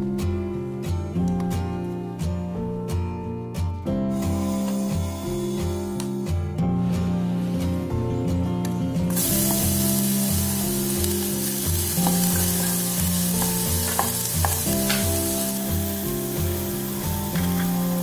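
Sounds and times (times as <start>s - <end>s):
garlic sizzling in oil: 9.1s - 18.0s.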